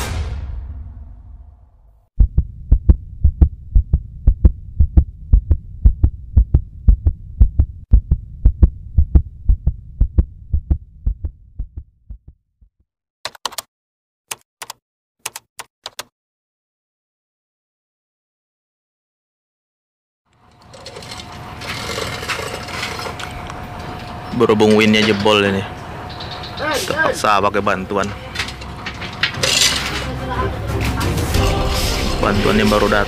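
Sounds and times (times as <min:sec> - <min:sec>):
heartbeat thumps: 0:02.2 - 0:12.7
typing clicks: 0:13.3 - 0:13.7, 0:14.3 - 0:16.1.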